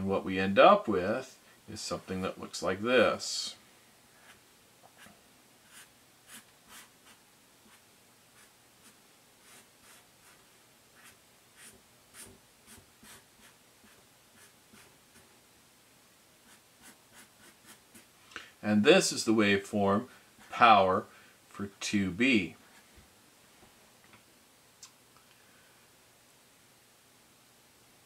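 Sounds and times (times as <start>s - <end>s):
marker drawing on paper: 5.0s - 15.3s, 16.4s - 18.1s.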